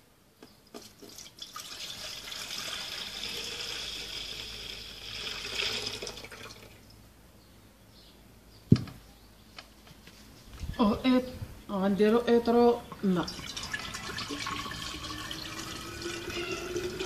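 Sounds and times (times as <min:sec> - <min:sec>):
milk pouring into metal pot: 0:01.0 - 0:06.7, 0:13.4 - 0:17.0.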